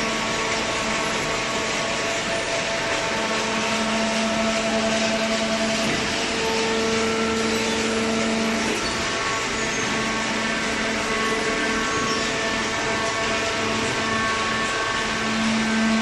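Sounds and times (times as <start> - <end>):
baler mechanical hum: 0.0 - 16.0.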